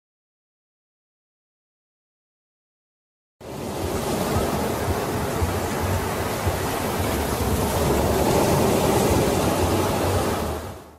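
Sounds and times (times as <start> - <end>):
ocean waves breaking: 3.4 - 10.9.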